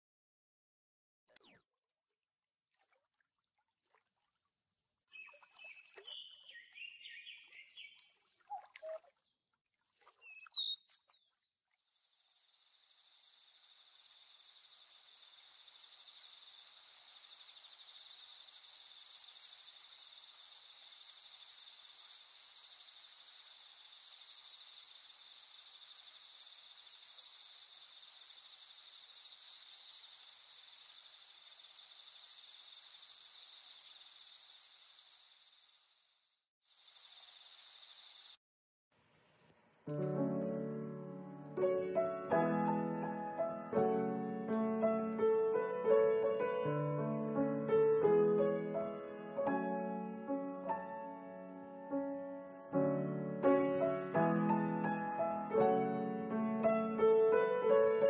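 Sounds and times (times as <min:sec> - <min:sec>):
birds chirping: 0:01.9 - 0:11.7
high insect chorus: 0:12.0 - 0:38.4.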